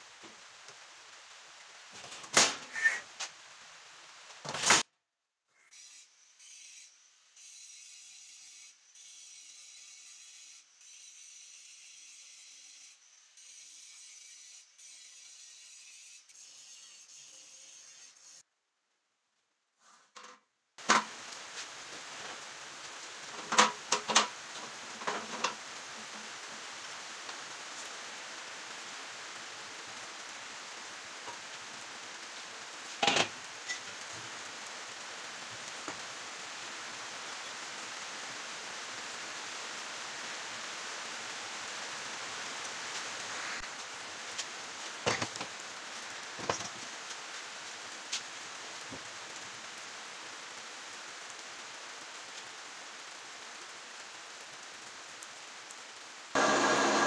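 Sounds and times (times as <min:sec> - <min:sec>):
background hiss: 0:20.8 - 0:57.0
metal parts knocking on workbench: 0:33.0 - 0:33.3.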